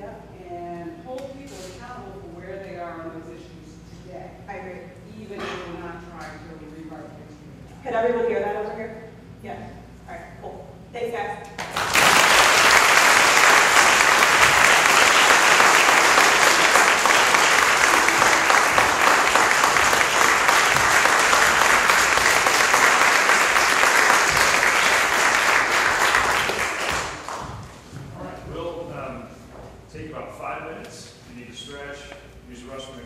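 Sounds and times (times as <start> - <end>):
audience applauding: 11.6 - 27.8.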